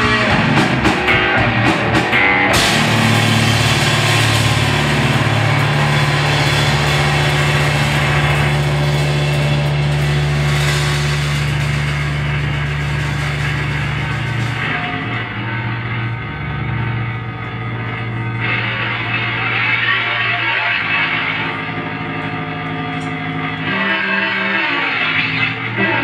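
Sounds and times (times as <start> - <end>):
distorted low drone: 0.0 - 26.0
drums: 0.0 - 26.0
noisy high hiss: 2.5 - 14.9.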